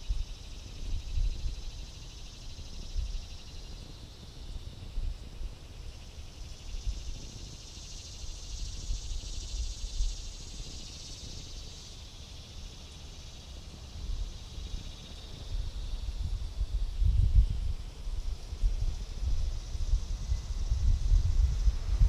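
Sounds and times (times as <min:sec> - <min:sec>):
wind buffeting microphone: 0:00.0 - 0:01.8, 0:13.9 - 0:22.0
fast-pulsing insect chorus: 0:00.0 - 0:22.0.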